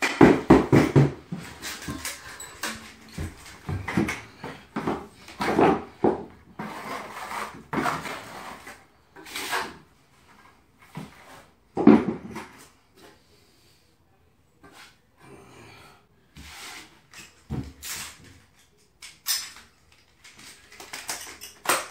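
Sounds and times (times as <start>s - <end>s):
trowel scraping plastic bucket: 0.6s - 9.9s.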